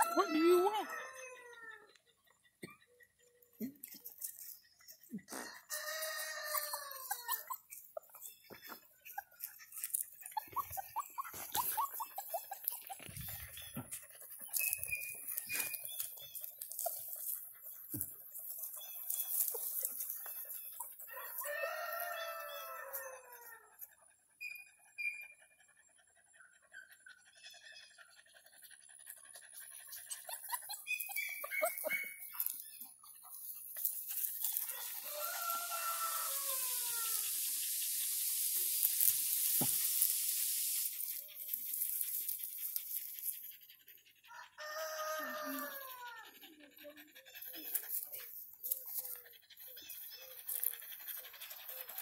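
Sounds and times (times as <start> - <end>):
rooster crowing: 0.0 - 1.7, 5.7 - 7.3, 21.1 - 23.5, 34.7 - 37.2, 44.3 - 46.2
rustling in grass: 33.4 - 43.3.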